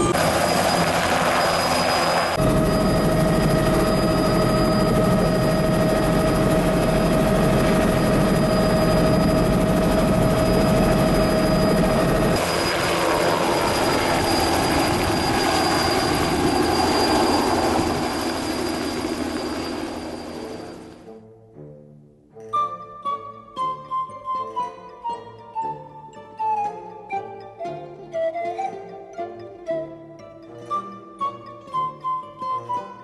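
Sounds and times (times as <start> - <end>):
helicopter rotor noise: 0.0 - 21.1
helicopter turbine whine: 0.0 - 21.1.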